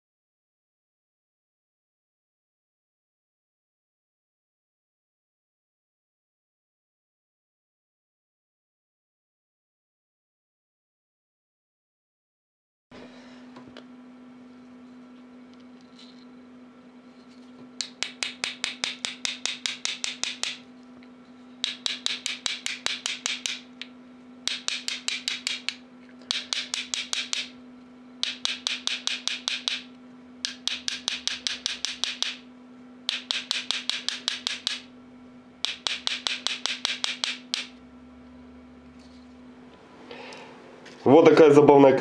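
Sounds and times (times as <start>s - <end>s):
small hammer tapping on metal: 17.8s - 20.6s, 21.6s - 23.9s, 24.5s - 27.5s, 28.2s - 32.4s, 33.1s - 34.9s, 35.6s - 37.7s.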